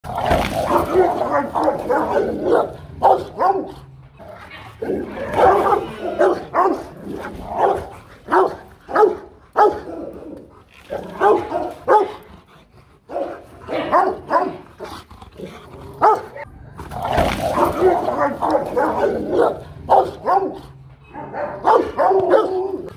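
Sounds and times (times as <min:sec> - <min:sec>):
dog barking: 0:00.6 - 0:03.8, 0:05.1 - 0:10.2, 0:10.9 - 0:12.2, 0:13.1 - 0:14.7, 0:16.0 - 0:16.4, 0:17.5 - 0:22.9.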